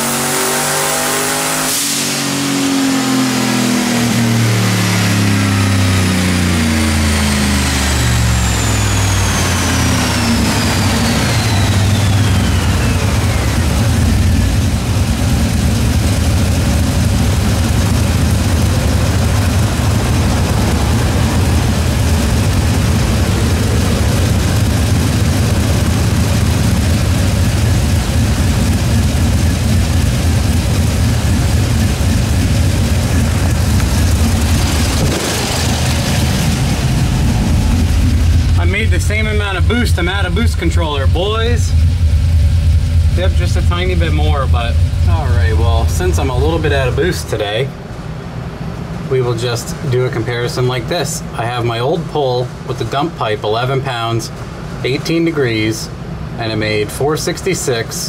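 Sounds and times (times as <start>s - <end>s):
high whine sweeping down: 0.0s - 53.0s
engine note falling: 0.0s - 58.0s.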